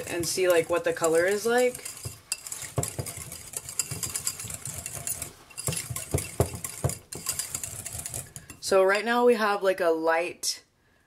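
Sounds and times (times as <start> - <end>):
whisk clicking against bowl: 0.0 - 8.7.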